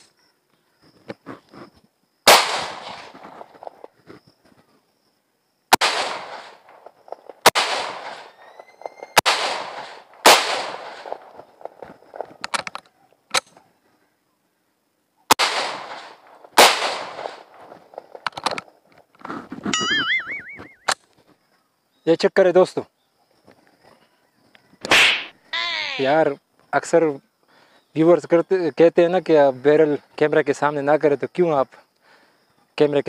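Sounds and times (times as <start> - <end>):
pistol shots with echo: 2.3 - 3.2, 5.7 - 6.8, 7.4 - 8.4, 9.1 - 11.4, 15.3 - 17.6.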